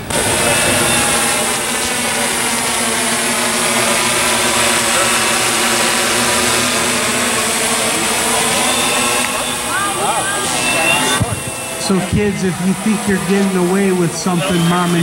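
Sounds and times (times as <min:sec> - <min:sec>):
drone motors humming: 0:00.0 - 0:15.0.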